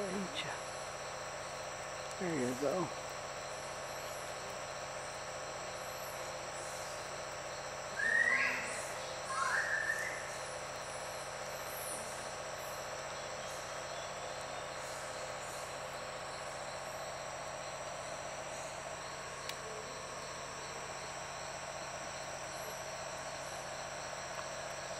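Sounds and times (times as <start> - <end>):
insects chorus: 0.0 - 24.9
faint click: 19.4 - 19.6.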